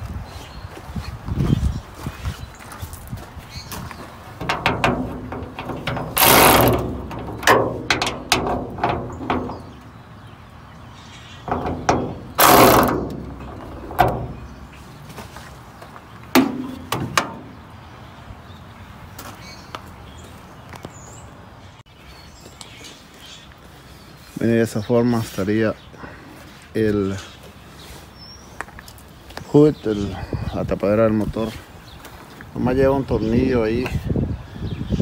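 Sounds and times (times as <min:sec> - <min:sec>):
electric ratchet running: 0:06.1 - 0:08.0, 0:12.3 - 0:14.1.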